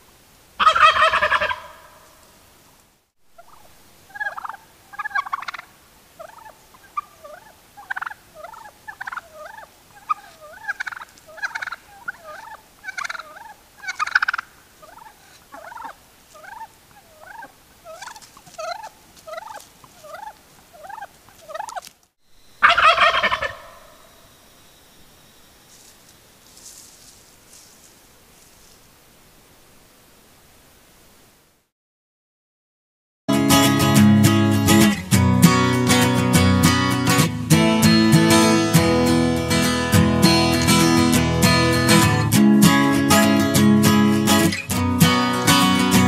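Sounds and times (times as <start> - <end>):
turkey gobbling: 0.6 - 2.2, 3.3 - 21.9, 22.6 - 24.2
short turkey calls: 0.6 - 2.3, 3.3 - 24.4, 25.2 - 28.8.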